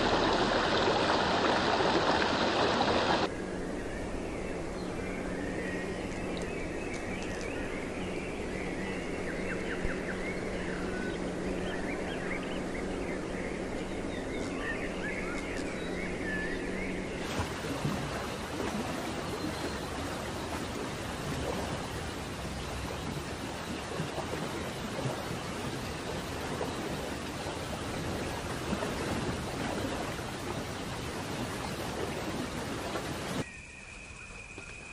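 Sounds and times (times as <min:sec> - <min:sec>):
flowing water rushing: 0:00.0 - 0:03.3, 0:14.0 - 0:34.1
birds chirping: 0:03.8 - 0:34.9.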